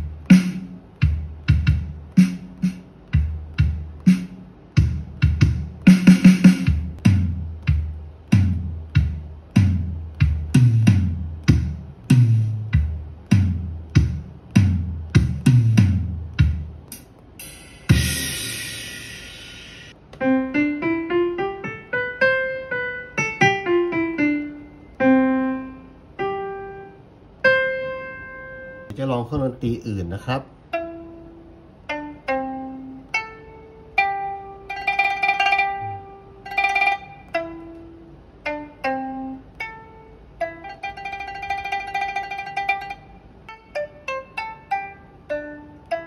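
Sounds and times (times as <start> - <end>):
electronic kick and toms: 0.0 - 19.9
cymbal crash: 16.9 - 20.0
keyboard piano-like notes: 20.0 - 28.9.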